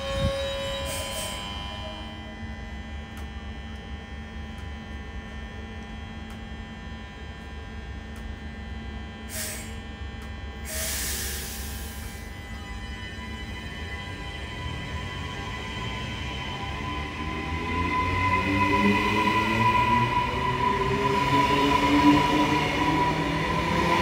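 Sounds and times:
high wheel squeal: 0.0s - 2.1s
train electrical hum: 0.0s - 24.0s
hiss bursts: 10.7s - 12.1s.

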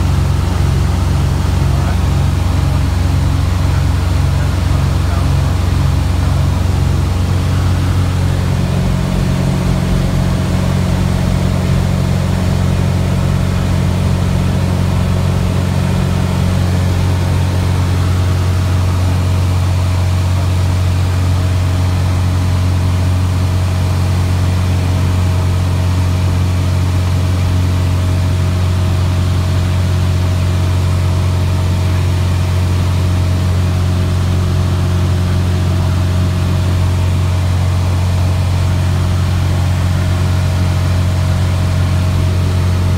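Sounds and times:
aircraft piston engine droning: 0.0s - 21.4s.

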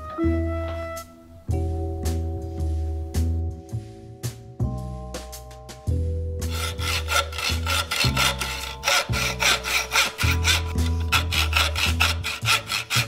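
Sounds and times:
background music: 0.0s - 13.0s
hacksaw cutting metal: 6.5s - 13.0s.

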